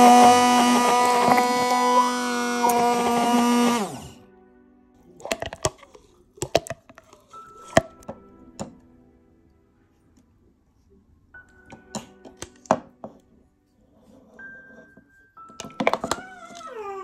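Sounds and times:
blender knocking on plastic cup: 0.0 - 2.0
stick blender motor spinning down: 0.0 - 4.2.

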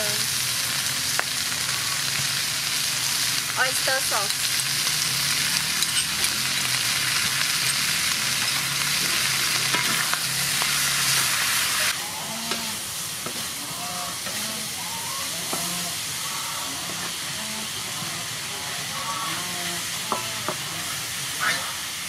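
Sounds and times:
meat sizzling in a wok: 0.0 - 22.0.

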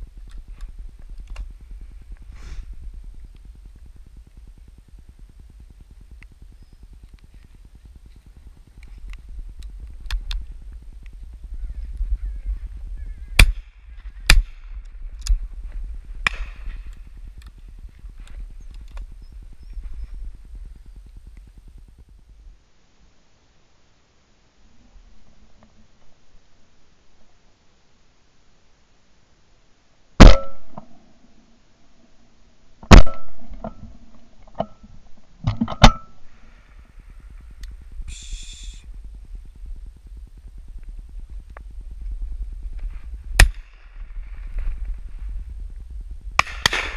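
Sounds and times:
steady low rumble: 0.0 - 22.7, 36.0 - 46.9
shotgun shots: 13.4 - 14.7, 30.2 - 30.8, 32.9 - 33.4, 46.4 - 46.9
quieter gun bangs: 16.2 - 16.9, 30.2 - 30.9, 32.9 - 33.7, 46.4 - 46.9
shotgun shot with ringing tail: 30.2 - 30.8, 46.4 - 46.9.

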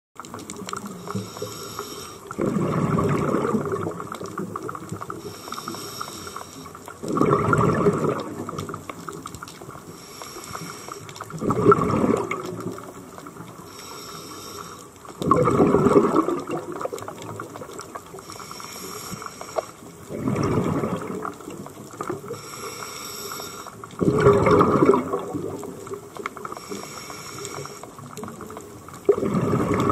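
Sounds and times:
exhaled bubbles gurgling underwater: 0.2 - 29.9
regulator hiss: 1.0 - 2.3, 5.2 - 6.8, 9.9 - 11.1, 13.6 - 15.0, 18.1 - 19.9, 22.3 - 23.8, 26.4 - 27.9.

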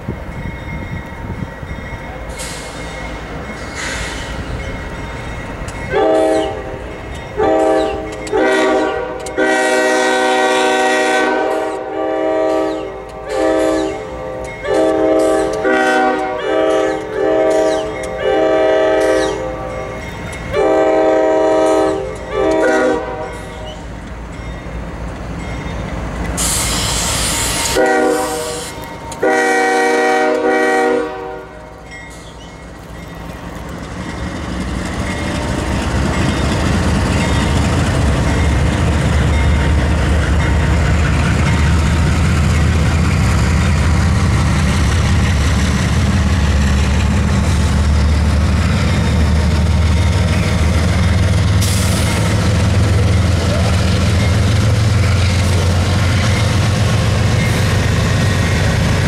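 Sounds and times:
train wheels on rails: 0.0 - 59.0
locomotive air horn blasts: 5.9 - 6.8, 7.4 - 19.9, 20.5 - 23.4, 26.4 - 31.8.

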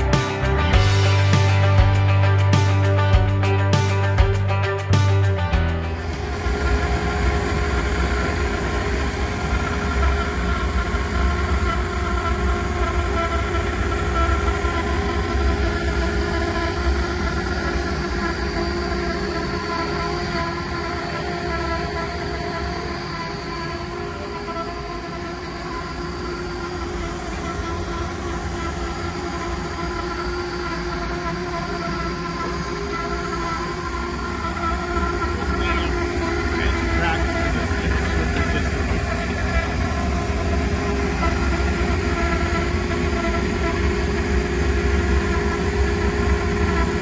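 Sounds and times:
car wash machinery hum: 0.0 - 47.0
car engine idling: 5.5 - 18.6.

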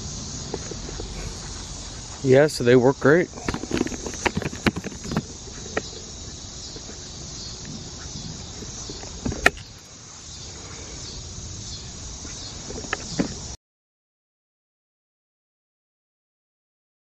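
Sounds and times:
insects chirring: 0.0 - 13.6.

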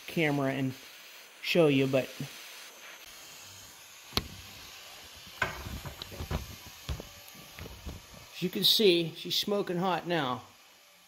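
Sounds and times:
propane torch hissing: 0.0 - 11.0
pliers knocking and rattling: 5.4 - 8.1.

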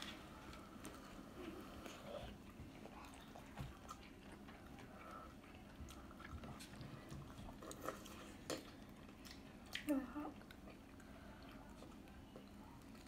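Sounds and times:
faint chewing and biting: 0.0 - 13.0.

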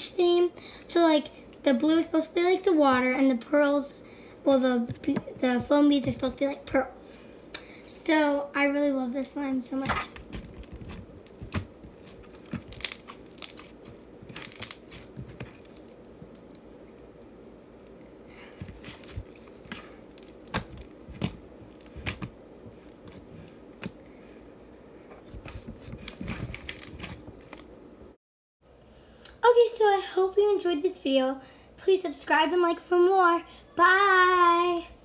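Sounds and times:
hands kneading slime: 9.7 - 17.2, 17.9 - 24.0.

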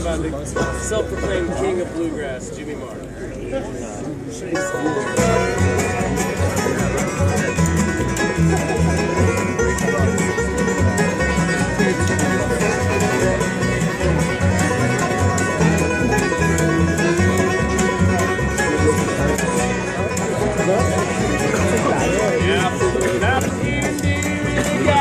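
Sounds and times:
bluegrass band playing: 0.0 - 25.0.

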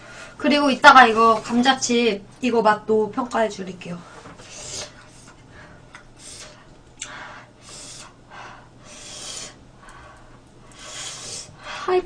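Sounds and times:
airy hissing breaths: 4.2 - 12.0.

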